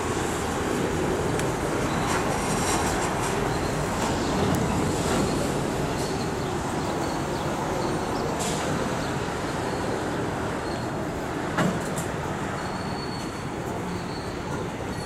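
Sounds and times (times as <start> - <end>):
train wheels rumbling on rails: 0.0 - 15.0
high wheel squeal: 12.4 - 15.0.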